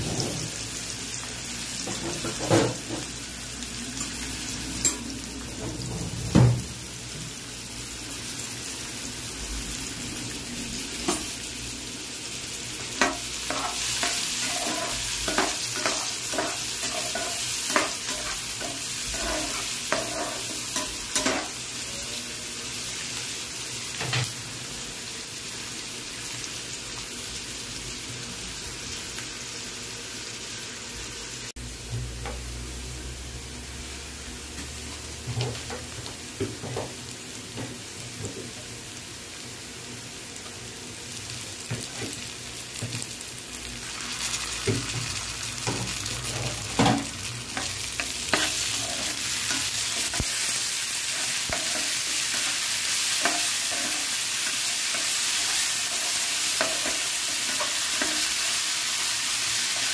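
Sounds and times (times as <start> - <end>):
onions sizzling in oil: 0.0 - 59.9
spatula scraping and tapping pan: 13.0 - 21.6, 44.6 - 50.4, 51.1 - 58.4.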